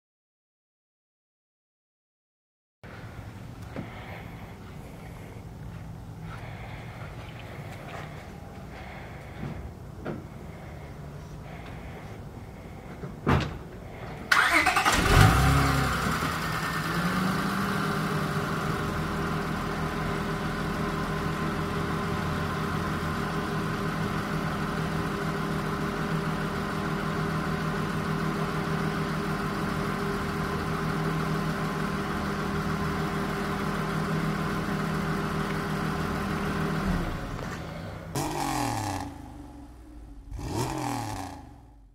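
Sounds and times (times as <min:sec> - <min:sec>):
car engine revving and idling: 0:03.0 - 0:12.9, 0:13.8 - 0:41.9
car engine cranking: 0:14.1 - 0:18.9, 0:36.6 - 0:41.9.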